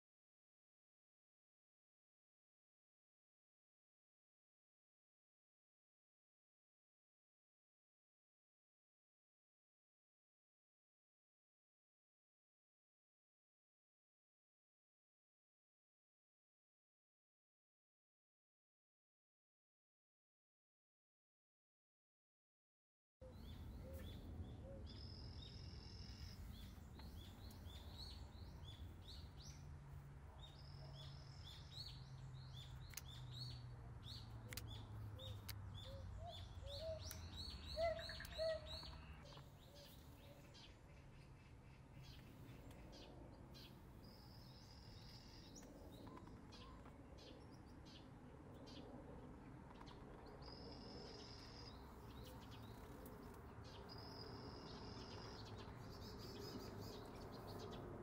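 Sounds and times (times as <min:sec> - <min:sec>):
small birds chirping and singing: 0:23.2 - 0:58.0
lower rising bird calls: 0:35.2 - 0:43.0.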